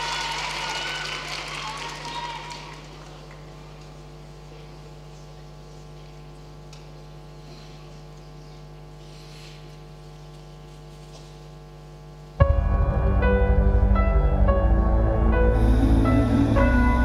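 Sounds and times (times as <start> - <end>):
faint arena background noise: 0.0 - 8.8
electrical mains hum: 0.0 - 17.0.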